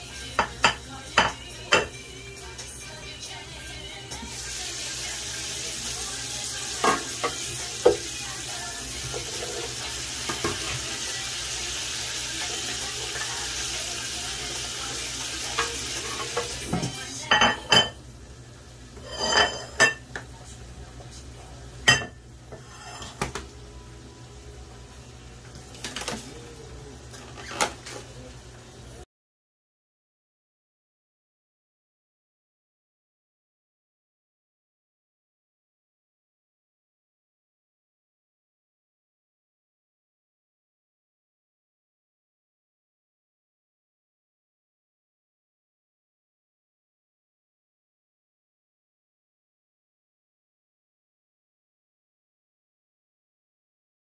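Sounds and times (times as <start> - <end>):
pots and utensils clinking: 6.5 - 8.1, 9.0 - 11.2, 15.4 - 18.0, 19.0 - 20.2, 21.8 - 23.6, 27.1 - 28.1.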